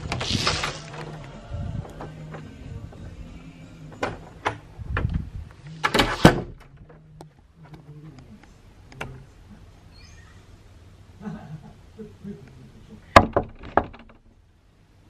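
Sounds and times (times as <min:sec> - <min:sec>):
door clicks and knocks: 0:13.2 - 0:14.3.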